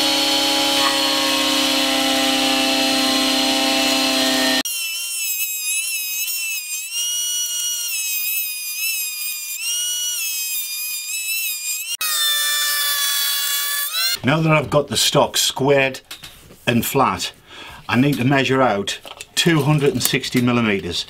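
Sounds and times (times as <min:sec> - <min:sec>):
planer motor whine with cutting hiss: 0:00.0 - 0:04.6.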